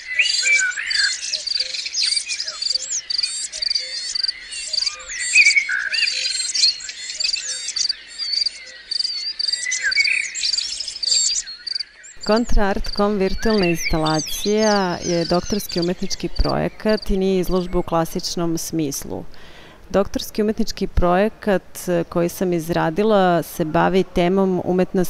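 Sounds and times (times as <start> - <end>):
birds chirping and whistling: 0.0 - 18.5
insect trill: 0.5 - 17.9.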